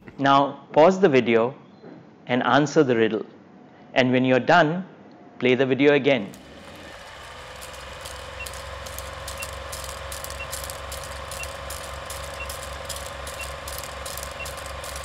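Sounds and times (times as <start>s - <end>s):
film projector clicking rattle: 6.2s - 15.0s
short high beeps: 7.6s - 15.0s.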